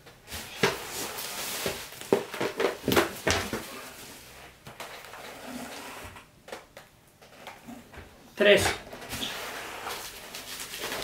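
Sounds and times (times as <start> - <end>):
bubble wrap crinkling: 9.0 - 11.0.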